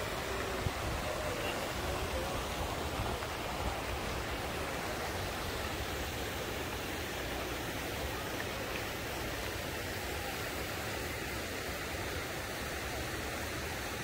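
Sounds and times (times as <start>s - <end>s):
fountain water splashing into pool: 0.0s - 14.0s.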